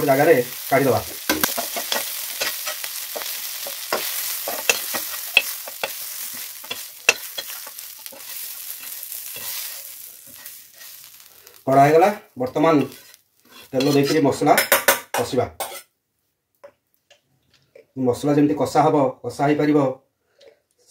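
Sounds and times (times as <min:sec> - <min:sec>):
prawns sizzling in oil: 0:00.0 - 0:14.7
utensil clicking and scraping pan: 0:01.3 - 0:11.3, 0:12.8 - 0:14.2.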